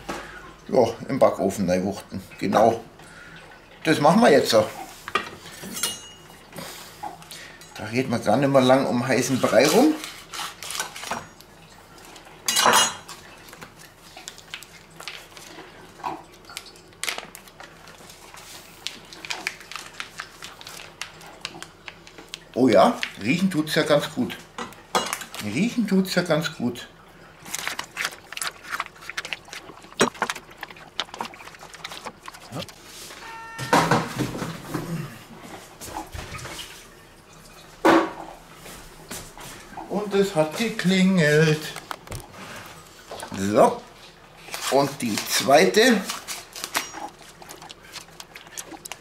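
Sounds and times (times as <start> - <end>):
kitchen utensils clinking and knocking: 5.6 - 6.3, 12.5 - 13.1, 33.2 - 34.8
plastic packaging rustling: 16.5 - 23.4, 27.4 - 33.3, 41.5 - 49.0
oven electronic beep: 33.2 - 34.5.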